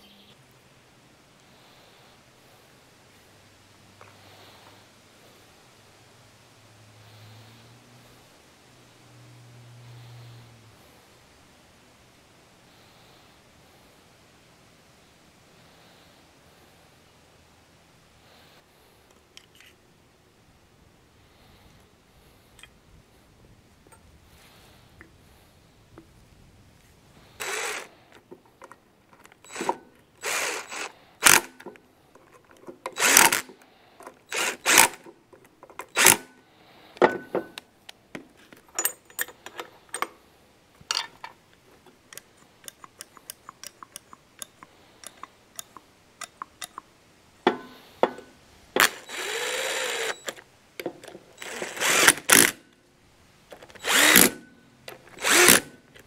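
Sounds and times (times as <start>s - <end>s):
cordless drill running in bursts: 27.4s - 27.9s, 29.5s - 31.5s, 33.0s - 33.5s, 34.3s - 35.0s, 36.0s - 36.3s, 48.8s - 50.4s, 51.4s - 52.6s, 53.8s - 54.4s, 55.2s - 55.7s
small metal parts clicking: 38.7s - 40.1s, 42.0s - 46.9s.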